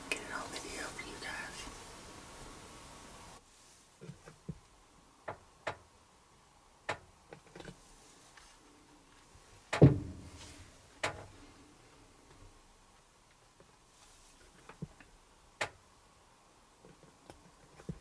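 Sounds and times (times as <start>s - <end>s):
sharp knock: 9.8s - 10.4s
deep thump: 9.8s - 10.6s.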